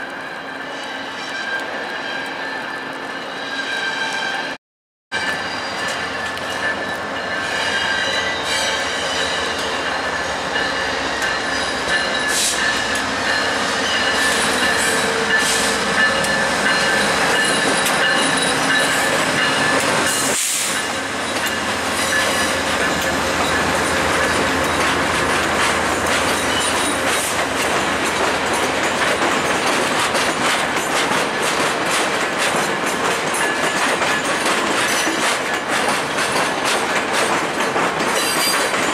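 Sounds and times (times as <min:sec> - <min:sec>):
wheel flanges squealing: 0:05.2 - 0:27.4
train wheels running on rails: 0:05.2 - 0:38.9
wheels clicking over rail joints: 0:09.0 - 0:38.9.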